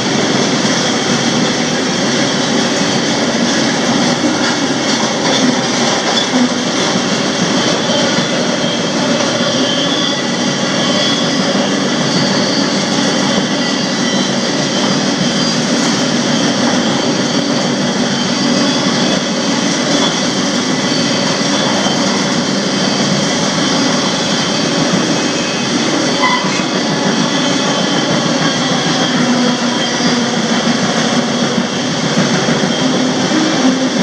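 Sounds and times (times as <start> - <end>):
freight train wheels on rails: 0.0 - 34.0
brief high note: 26.2 - 26.7.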